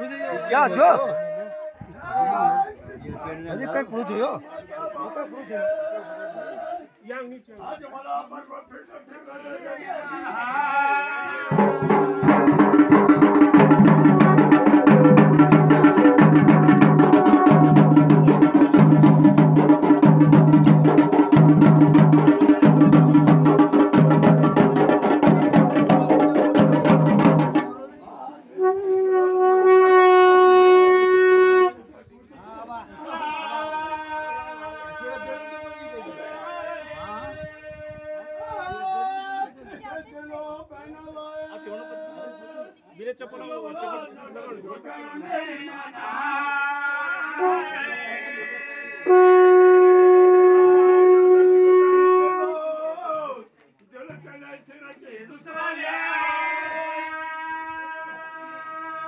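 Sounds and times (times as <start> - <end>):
drums beaten fast: 11.5 - 27.8
horn blowing long note: 13.6 - 18.5, 28.6 - 31.8, 47.4 - 47.9, 48.9 - 52.6.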